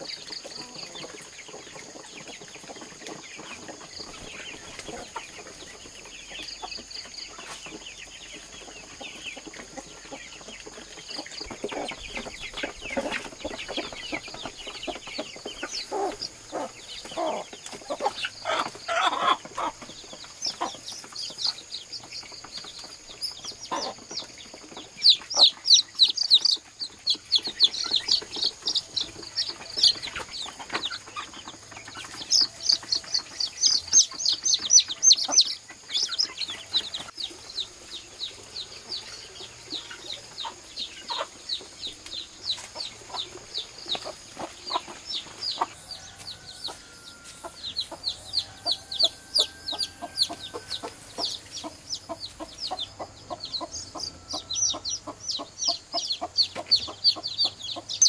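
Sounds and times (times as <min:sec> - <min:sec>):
chickens clucking: 0:00.0 - 0:58.0
chicks peeping: 0:00.0 - 0:58.0.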